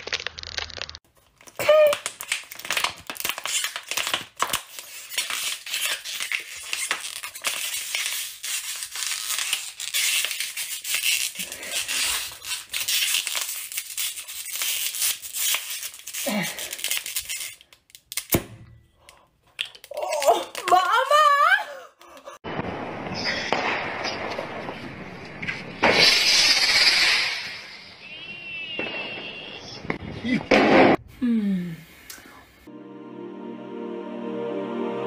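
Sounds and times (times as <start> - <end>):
plastic bottle being crushed: 0.0 - 18.5.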